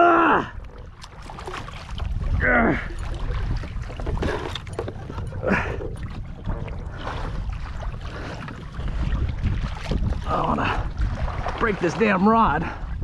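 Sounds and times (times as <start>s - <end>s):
water lapping against kayak hull: 0.0s - 13.0s
wind buffeting microphone: 0.0s - 13.0s.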